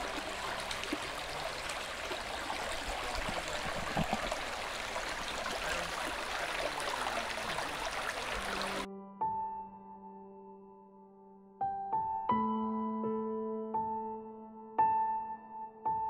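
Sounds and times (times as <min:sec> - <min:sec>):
brook babbling over stones: 0:00.0 - 0:08.9.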